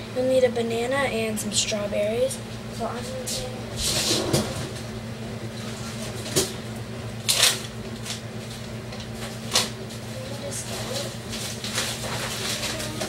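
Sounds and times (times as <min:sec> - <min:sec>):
low electrical hum: 0:00.0 - 0:13.0
rummaging rustles and knocks: 0:10.9 - 0:13.0.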